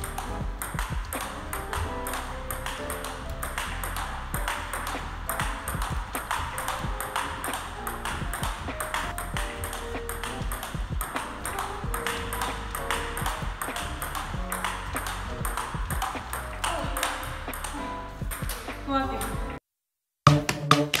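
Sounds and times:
ping-pong ball bouncing on table: 0:00.0 - 0:19.5
ping-pong ball hitting rackets: 0:00.0 - 0:19.5
background music: 0:00.0 - 0:19.6, 0:20.3 - 0:21.0.

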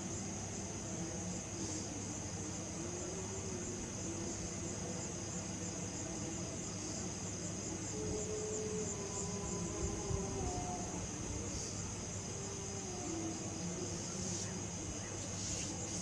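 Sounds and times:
crickets chirping: 0:00.0 - 0:16.0.

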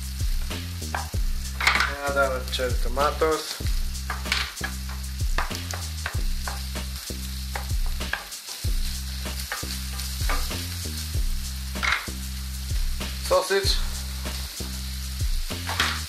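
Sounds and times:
background music with bass notes: 0:00.0 - 0:16.0
vegetables sizzling in a frying pan: 0:00.0 - 0:16.0
wooden spatula scraping a pan: 0:00.9 - 0:02.0, 0:03.3 - 0:10.7.

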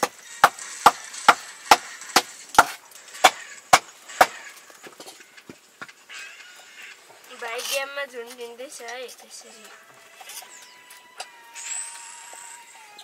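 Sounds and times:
blade chopping on wood: 0:00.0 - 0:04.5.

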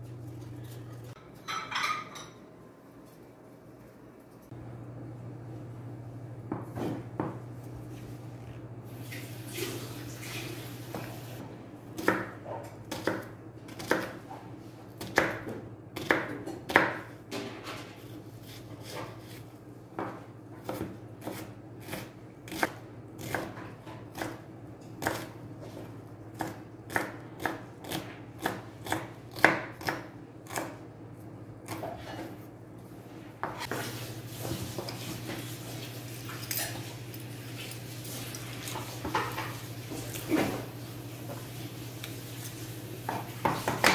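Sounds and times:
knife chopping onion on board: 0:12.0 - 0:14.4, 0:15.0 - 0:17.1, 0:20.0 - 0:25.4, 0:26.3 - 0:30.8, 0:31.6 - 0:32.2, 0:43.1 - 0:43.9.

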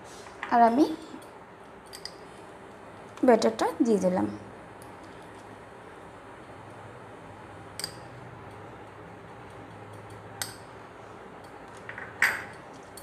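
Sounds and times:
low steady hum: 0:00.0 - 0:13.0
spoon clicking against glass bowl: 0:07.8 - 0:08.1, 0:09.9 - 0:10.7.

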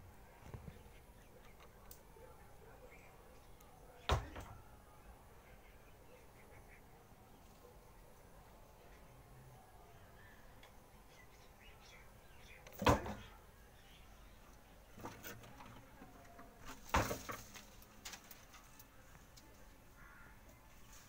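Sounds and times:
scraping knocks on brick and rubble: 0:16.6 - 0:18.2.

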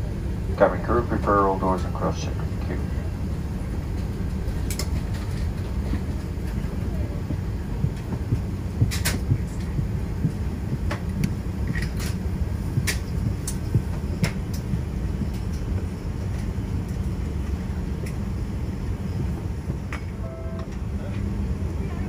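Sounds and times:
airliner low rumble: 0:00.0 - 0:22.0
clicks and knocks in cabin: 0:07.9 - 0:09.8.

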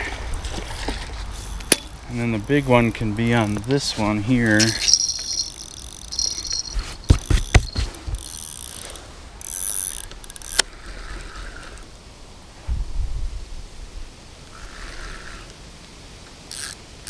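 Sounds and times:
fishing reel clicking and ratcheting: 0:03.3 - 0:03.8, 0:04.4 - 0:10.7, 0:16.5 - 0:16.8.

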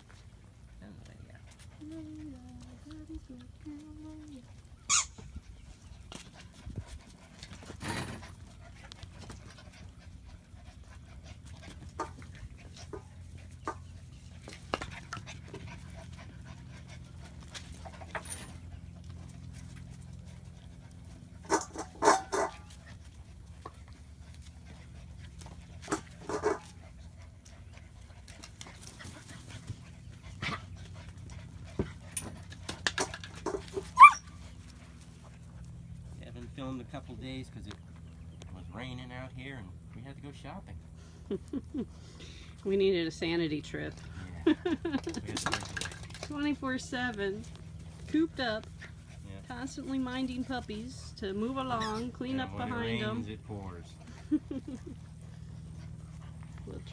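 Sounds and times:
puppies panting: 0:00.0 - 0:56.9
puppy yelping: 0:04.8 - 0:05.4, 0:33.7 - 0:34.5, 0:51.7 - 0:53.0.

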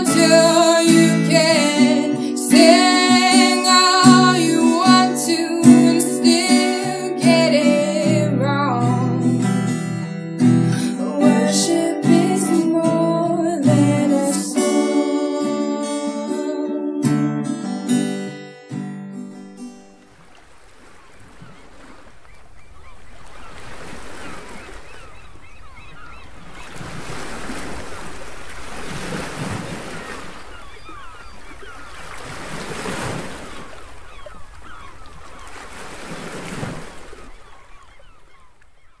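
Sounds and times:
ocean surf washing ashore: 0:00.0 - 0:16.9, 0:20.0 - 0:37.9
birds calling: 0:20.8 - 0:28.2, 0:29.6 - 0:39.0.

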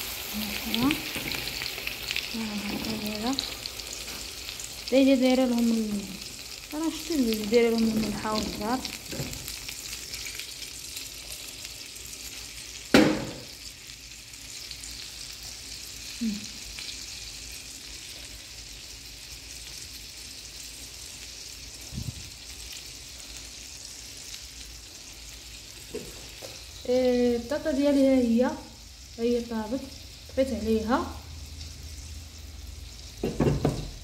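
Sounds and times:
steaks sizzling in butter: 0:00.0 - 0:34.0
sharp knock: 0:12.9 - 0:13.5.

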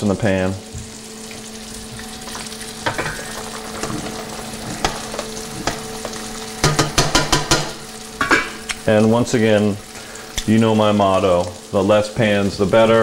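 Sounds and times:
meat sizzling in oil: 0:00.0 - 0:13.0
utensil clicking against pan: 0:04.8 - 0:08.8.

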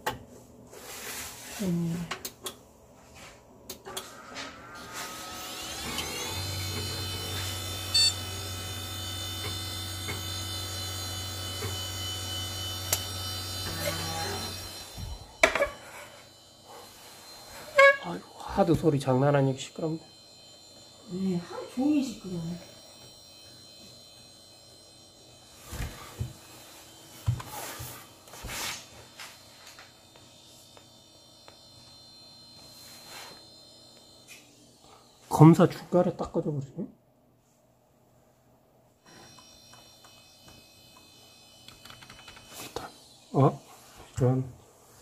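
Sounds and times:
computer humming: 0:03.6 - 0:45.0
hard disk drive spinning: 0:03.7 - 0:36.6, 0:39.0 - 0:44.5
computer fans humming: 0:16.3 - 0:36.6.

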